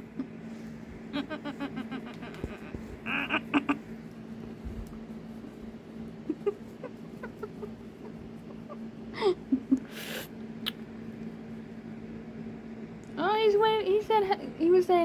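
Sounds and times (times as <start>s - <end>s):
cat chirping: 1.8s - 3.8s.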